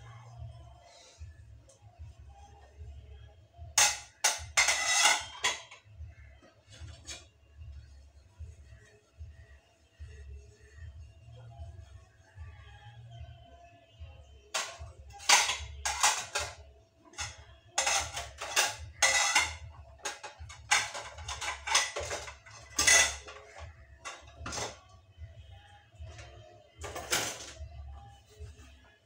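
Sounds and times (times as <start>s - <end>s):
dishes and cutlery clinking: 3.6s - 7.4s, 14.5s - 24.9s, 26.0s - 27.8s.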